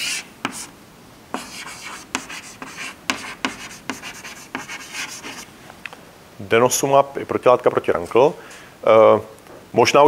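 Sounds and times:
chalk scratching on blackboard: 0.0s - 0.7s, 1.3s - 5.5s
chalk tapping on blackboard: 0.0s - 0.7s, 1.3s - 5.4s.

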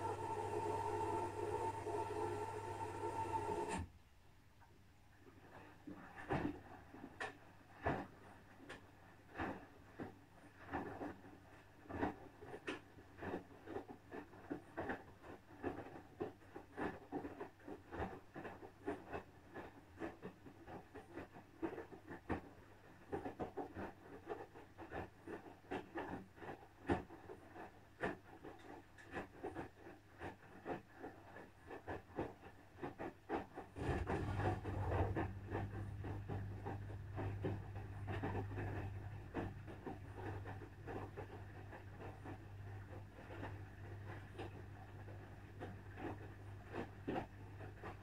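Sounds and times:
washing machine drum tumbling laundry: 0.0s - 3.9s, 33.4s - 48.0s
washing machine low hum: 0.0s - 4.5s, 17.9s - 48.0s.

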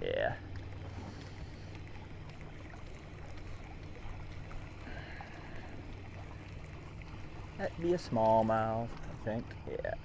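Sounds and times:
outboard motor humming: 0.0s - 10.0s
water washing around boat: 0.0s - 10.0s.

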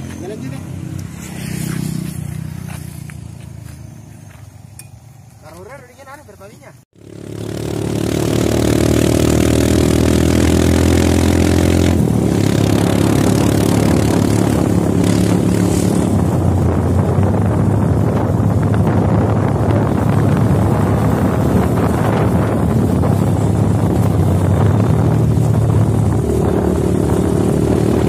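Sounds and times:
small motorcycle engine running: 0.0s - 4.6s, 7.0s - 28.0s
wind noise on microphone: 9.4s - 28.0s.

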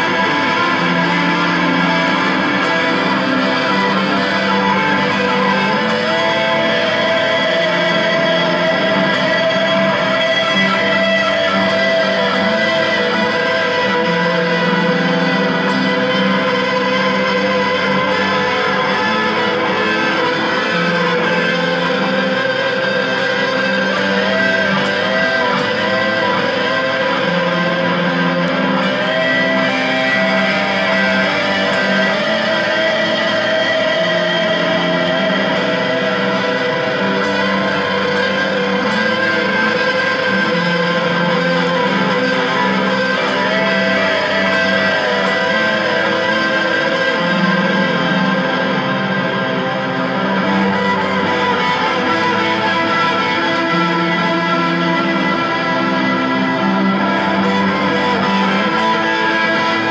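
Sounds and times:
electric guitar with vibrato: 0.0s - 59.9s.

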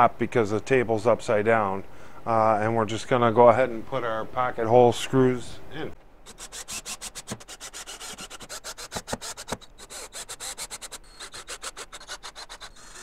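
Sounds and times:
drill clicks and scrapes: 6.3s - 13.0s.

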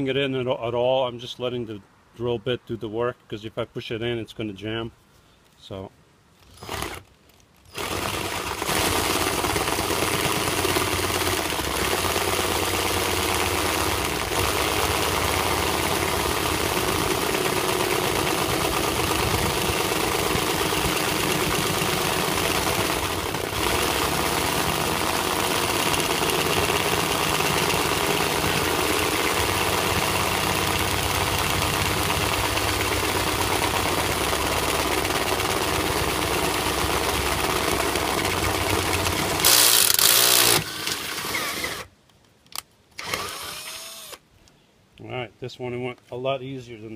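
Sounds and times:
cordless drill cutting metal: 7.7s - 41.9s, 43.0s - 44.2s.

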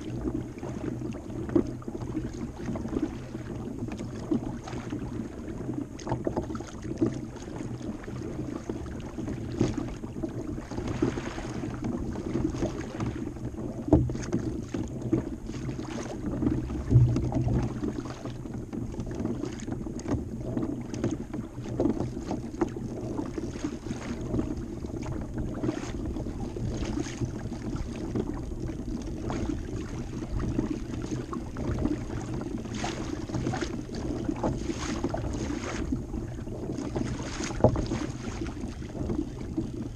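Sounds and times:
water lapping against kayak hull: 0.0s - 39.9s.

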